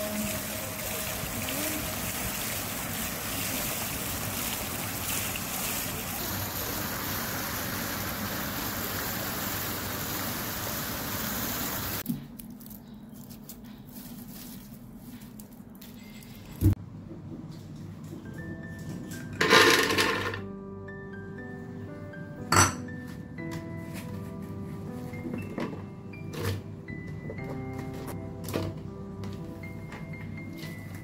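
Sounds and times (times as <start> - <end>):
fountain water spraying and falling: 0.0 - 12.0.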